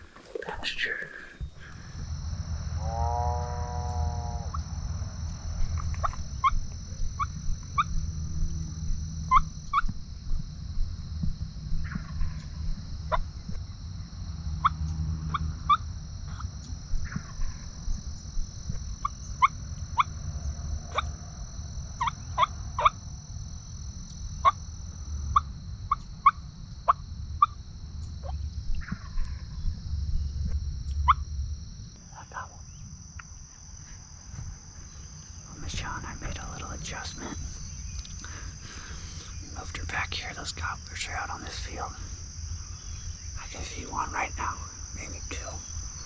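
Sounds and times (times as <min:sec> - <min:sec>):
high-pitched hum: 0:00.0 - 0:46.0
low rumble: 0:01.4 - 0:19.1, 0:27.1 - 0:32.5.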